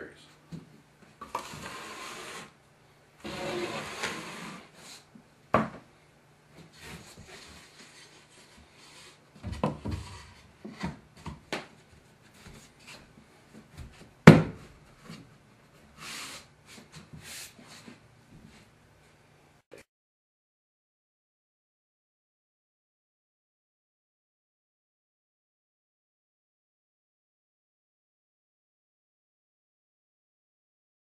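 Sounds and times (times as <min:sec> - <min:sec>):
hands rubbing board: 0:01.2 - 0:02.5
trowel scraping mortar: 0:01.3 - 0:02.5.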